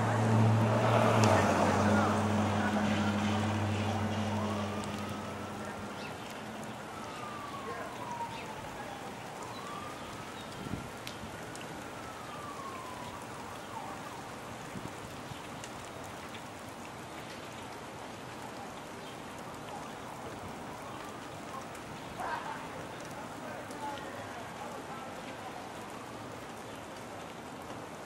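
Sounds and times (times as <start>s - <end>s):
steady rain falling: 0.0s - 28.0s
siren wailing: 0.5s - 14.6s.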